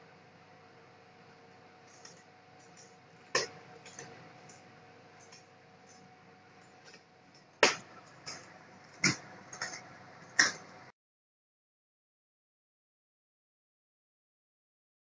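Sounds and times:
cat scratching litter: 1.8 - 10.7.

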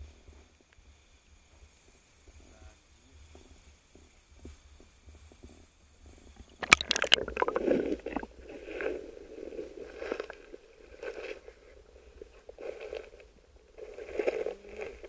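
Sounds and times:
underwater bubbling and gurgling: 6.1 - 15.0
person diving into water splash: 6.5 - 8.8.

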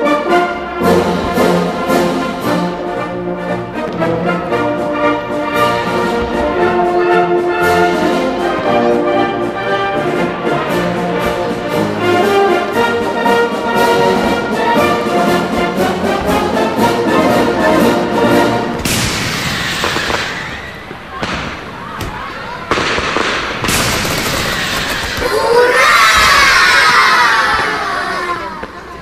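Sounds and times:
orchestral music with brass: 0.0 - 21.8.

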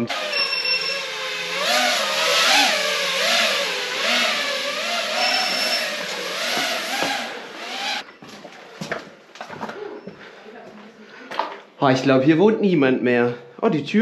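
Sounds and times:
engine revving: 0.0 - 8.0.

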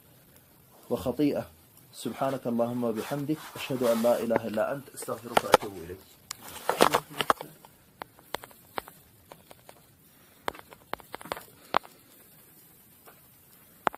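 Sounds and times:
faint irregular clicks and knocks: 3.9 - 13.9.

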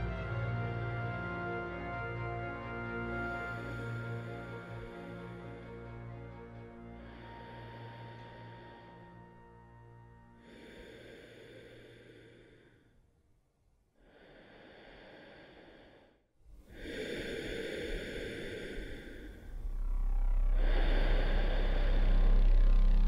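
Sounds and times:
man breathing through gas mask: 3.2 - 13.0, 14.0 - 23.0
deep low rumble: 18.8 - 23.0.

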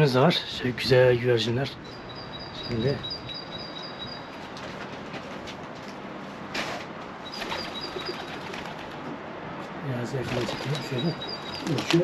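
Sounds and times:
outdoor background noise: 0.0 - 12.0
small bird chirping: 1.8 - 4.4, 7.2 - 8.6, 10.4 - 11.9.

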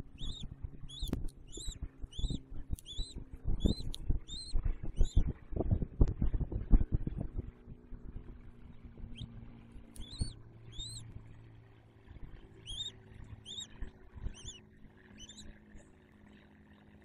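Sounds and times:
eagle chirping: 0.0 - 5.3, 9.0 - 11.2, 12.5 - 15.6
wind rumble: 0.0 - 11.4.

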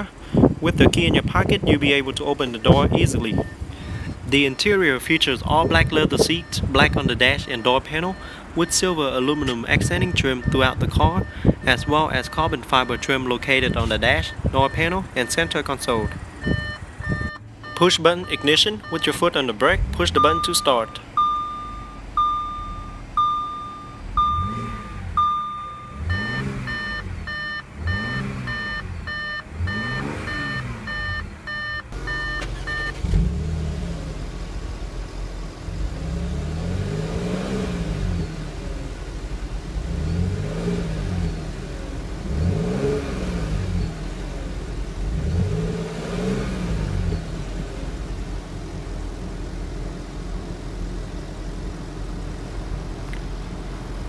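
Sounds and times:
car engine idling: 1.9 - 54.0
dashboard warning chime: 2.5 - 3.6, 5.6 - 33.0
car engine revving: 2.7 - 54.0.

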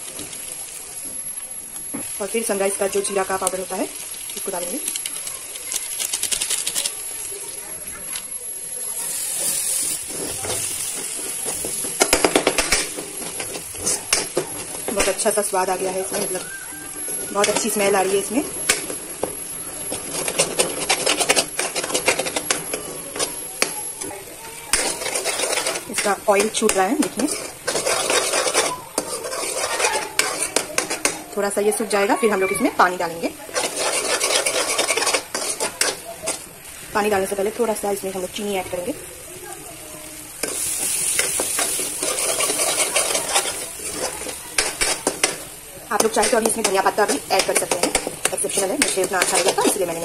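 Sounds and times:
dal frying in oil: 0.0 - 50.0
metal spoon scraping a pan: 9.0 - 19.0, 19.8 - 23.7, 24.7 - 32.4, 33.1 - 36.5, 40.4 - 50.0.

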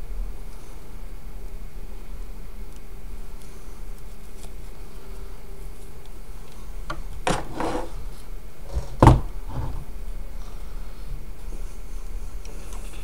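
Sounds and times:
rustling scrape: 6.9 - 9.9.

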